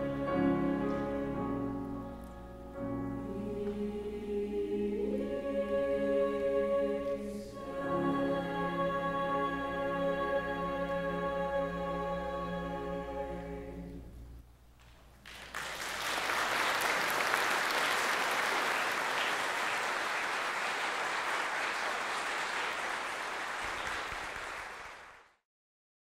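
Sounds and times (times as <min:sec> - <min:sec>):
choir holding a chord: 0:00.0 - 0:14.3
audience applause: 0:15.2 - 0:25.4.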